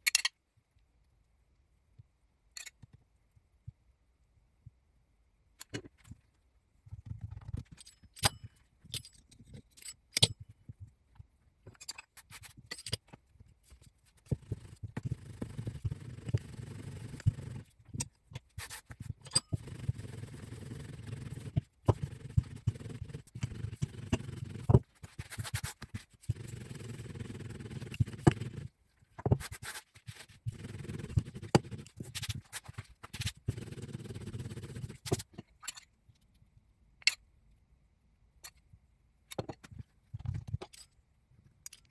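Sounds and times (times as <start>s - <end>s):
dough rubbing and pressing: 12.2s - 35.4s.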